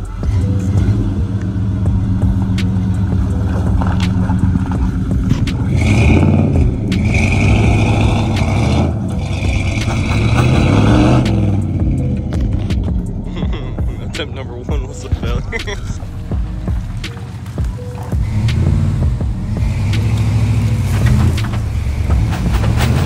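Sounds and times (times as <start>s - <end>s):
truck engine under load: 0.0s - 23.0s
spinning tyres throwing dirt: 1.9s - 12.9s, 16.0s - 23.0s.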